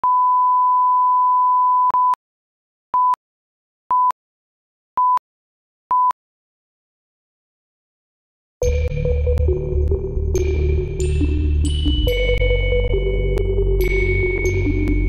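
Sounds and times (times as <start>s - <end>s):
short countdown beeps: 3.0s - 3.2s, 5.0s - 5.2s.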